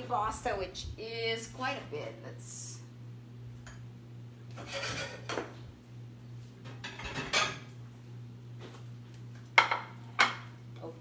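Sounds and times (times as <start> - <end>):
steady low hum: 0.0 - 11.0
dishes and utensils clattering: 4.6 - 5.6, 6.7 - 7.7.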